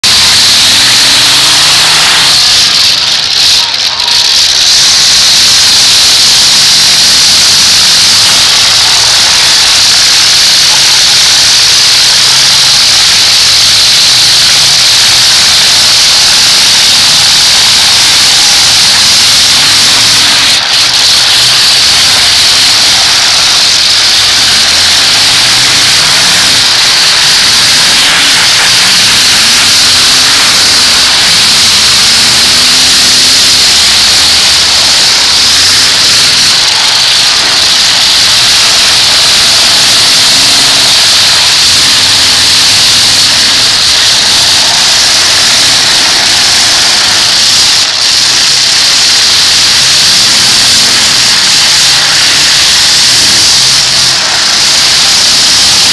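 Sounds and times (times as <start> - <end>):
car engines revving: 16.0 - 48.7.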